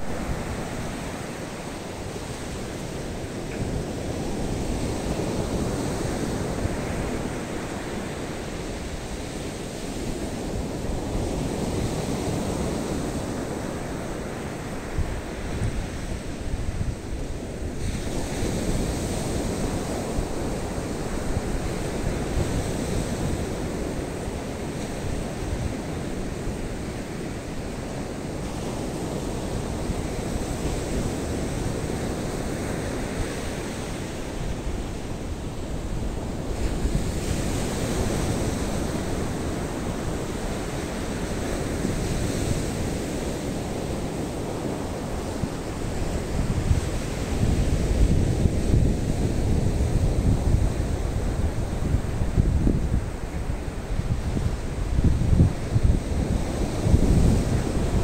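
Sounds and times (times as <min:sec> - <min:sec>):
wind rumbling on microphone: 0:00.0 - 0:58.0
surf breaking on beach: 0:26.6 - 0:58.0.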